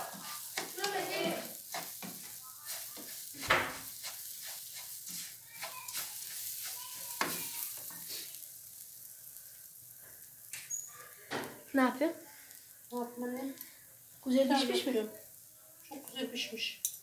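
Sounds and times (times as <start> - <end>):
spoon stirring and scraping grain: 0.0 - 9.4
grain sizzling in a pot: 0.0 - 17.0.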